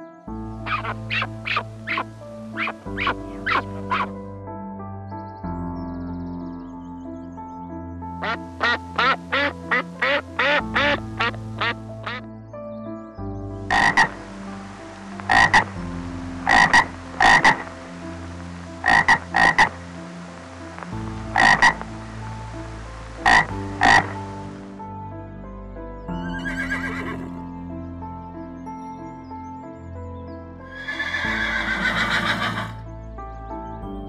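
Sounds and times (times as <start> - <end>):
frog croaking: 0.6 - 4.1, 8.2 - 12.2, 13.6 - 15.8, 16.4 - 17.8, 18.8 - 22.0, 23.1 - 24.6.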